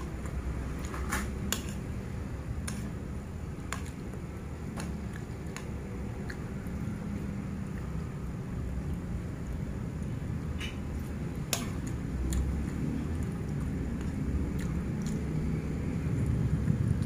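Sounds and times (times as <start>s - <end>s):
steady low hum: 0.0s - 17.0s
chewing: 4.8s - 6.9s, 11.0s - 15.5s.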